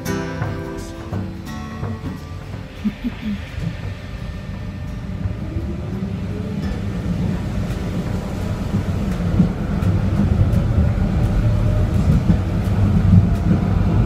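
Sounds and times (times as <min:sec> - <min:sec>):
drive whine: 0:00.0 - 0:14.0
tram low rumble: 0:00.0 - 0:14.0.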